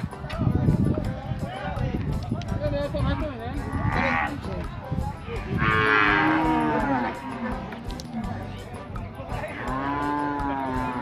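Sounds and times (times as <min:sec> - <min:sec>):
cow mooing: 0:03.6 - 0:04.4, 0:05.6 - 0:08.4, 0:09.6 - 0:11.0.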